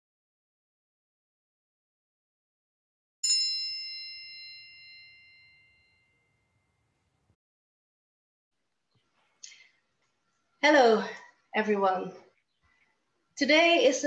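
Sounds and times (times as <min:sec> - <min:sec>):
bright bell-like chime: 0:03.2 - 0:07.1.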